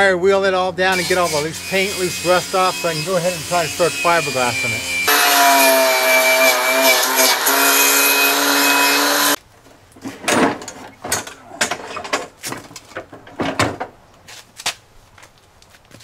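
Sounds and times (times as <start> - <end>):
angle grinder wire wheel whining: 0.9 - 9.4
metal deck clattering on concrete: 10.0 - 14.0.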